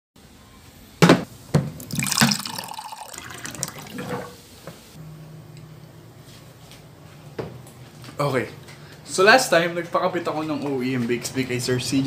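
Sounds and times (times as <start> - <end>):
water pouring into mug: 1.8 - 4.4.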